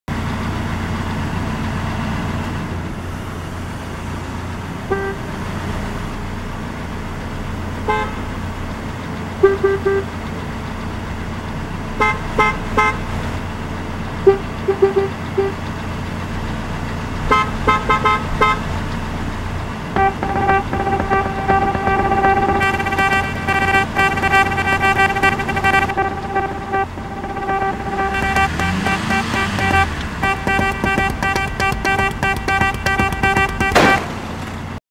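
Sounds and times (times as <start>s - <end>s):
car horns honking: 4.8s - 5.4s, 7.8s - 8.4s, 9.4s - 10.2s, 12.0s - 13.1s, 14.2s - 15.7s, 17.3s - 18.8s, 20.0s - 34.5s
car horn stuttering rapidly: 4.9s - 5.4s, 7.9s - 8.3s, 9.4s - 10.2s, 12.0s - 13.1s, 14.2s - 15.7s, 17.3s - 18.7s, 20.0s - 34.3s.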